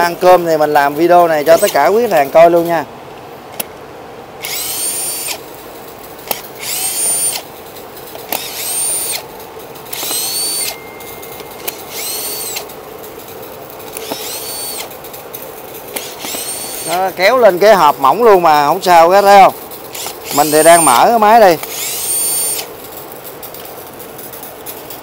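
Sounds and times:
cordless drill whirring: 1.5 - 2.4, 4.4 - 5.4, 6.3 - 7.5, 8.3 - 9.3, 9.9 - 12.8, 13.9 - 15.0, 15.9 - 17.4, 19.9 - 22.7.

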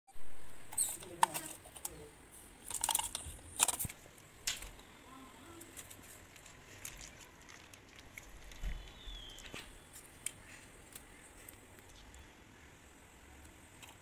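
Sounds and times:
plastic packet crinkling: 5.6 - 12.0.

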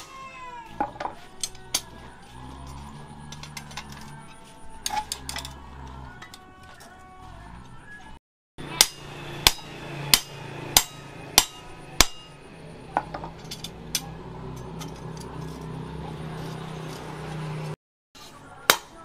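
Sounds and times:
hammer striking steel punch: 8.6 - 12.4, 18.7 - 19.0.

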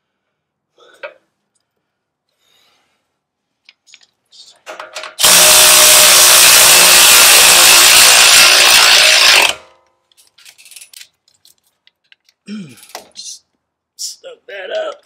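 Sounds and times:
electric ratchet running: 5.2 - 9.6.

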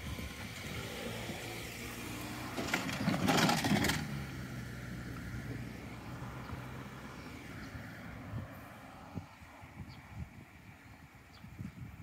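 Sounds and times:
low engine hum: 0.0 - 12.0
vehicle passing on road: 0.0 - 12.0.

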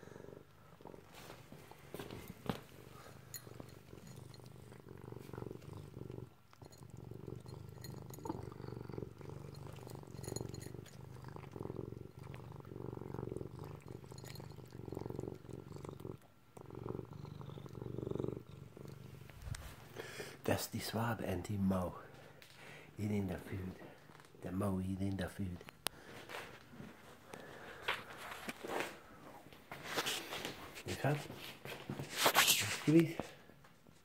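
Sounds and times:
cat purring: 0.0 - 33.6
cat crunching kibble: 0.8 - 20.0.

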